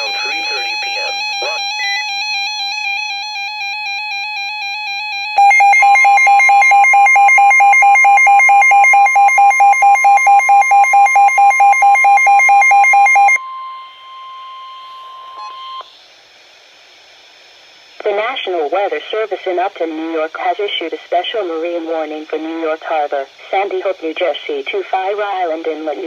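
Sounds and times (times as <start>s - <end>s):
rapidly pulsing beep: 0.0s - 2.4s, 5.4s - 13.4s
warbling electronic alarm: 0.0s - 15.8s.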